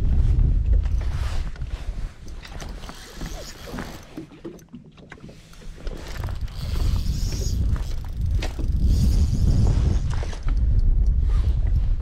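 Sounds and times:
wind rumbling on microphone: 0.0 - 4.0, 5.8 - 12.0
waves lapping against boat hull: 0.2 - 12.0.

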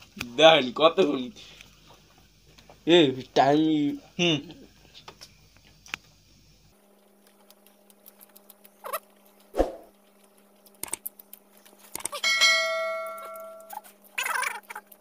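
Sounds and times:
wet mouth clicks while eating: 7.3 - 9.0, 10.6 - 12.2
muffled squeaky vocal noises: 13.8 - 15.0.

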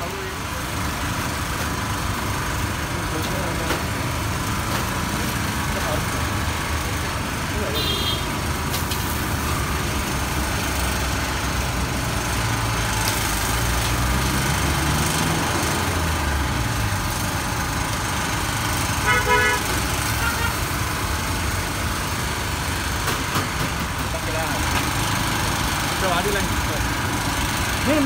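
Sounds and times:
street traffic: 0.0 - 28.0
vehicle horn toot: 7.7 - 8.3, 19.0 - 19.6, 20.2 - 20.6
vehicle engine passing: 8.6 - 19.0.

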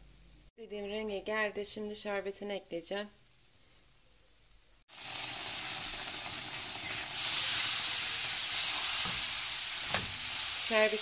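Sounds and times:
syrup hissing in hot pan: 4.9 - 11.0.

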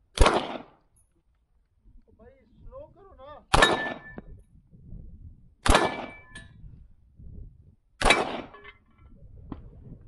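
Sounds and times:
gunshots: 0.1 - 0.8, 3.5 - 4.2, 5.6 - 6.4, 8.0 - 8.7
bullet ringing steel target: 3.5 - 4.3, 5.6 - 6.6, 8.0 - 8.8.

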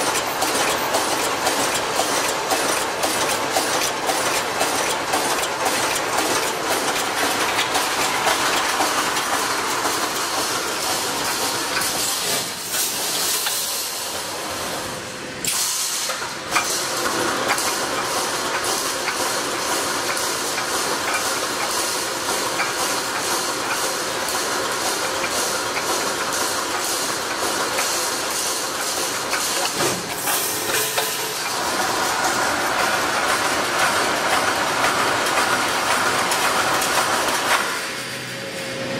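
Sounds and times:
sharp machine clicks: 0.0 - 13.8, 15.5 - 37.9
welding machine clatter: 0.0 - 38.8
hiss: 15.4 - 17.0.

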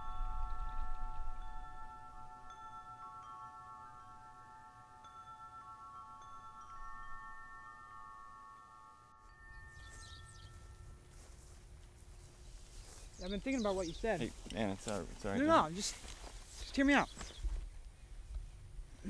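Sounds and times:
held chime-like chord: 0.0 - 12.7.

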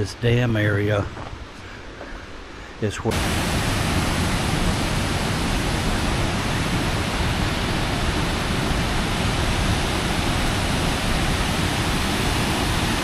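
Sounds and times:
water rushing over dam spillway: 2.8 - 13.0.

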